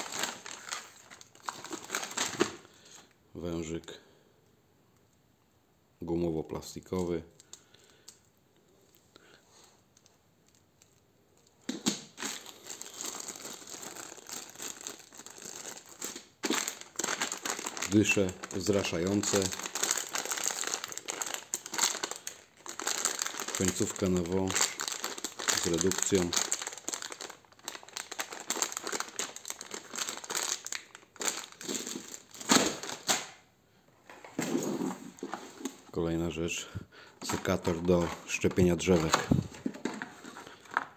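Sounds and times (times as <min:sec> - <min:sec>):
plastic bag crinkling: 0:00.0 - 0:03.1, 0:10.4 - 0:33.4, 0:37.2 - 0:40.9.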